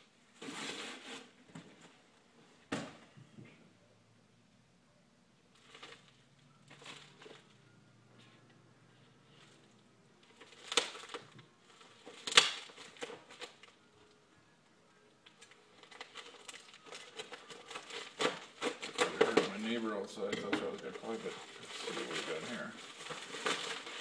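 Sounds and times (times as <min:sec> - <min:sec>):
plastic wrap crinkling: 0:05.5 - 0:24.0.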